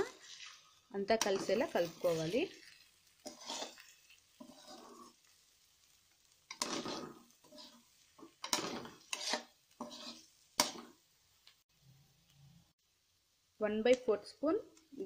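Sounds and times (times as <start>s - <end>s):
spatula scraping metal pan: 0.0s - 5.3s, 6.5s - 10.9s.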